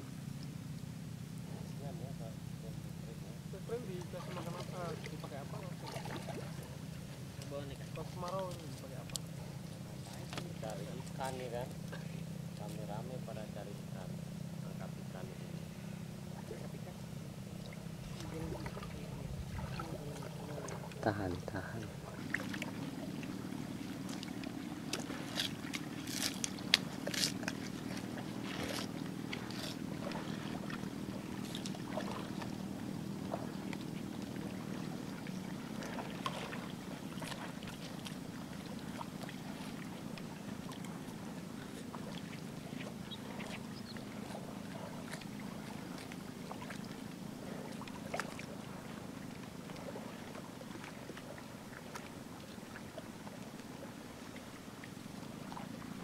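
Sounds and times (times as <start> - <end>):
low motor-like drone: 0.0 - 56.0
buffalo feeding clicks and splashes: 3.7 - 13.3, 21.8 - 55.8.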